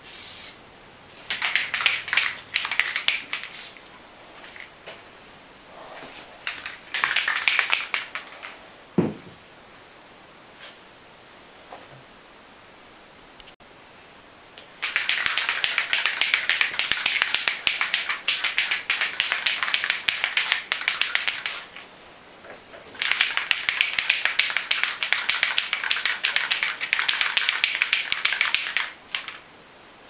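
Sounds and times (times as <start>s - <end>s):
aerosol can ball rattling: 1.2s - 3.7s, 6.4s - 8.6s, 14.8s - 21.8s, 22.9s - 29.4s.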